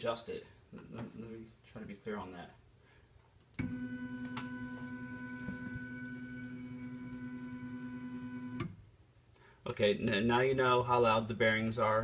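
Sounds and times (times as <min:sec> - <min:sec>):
stepper motor whining hum: 0:03.6 - 0:08.7.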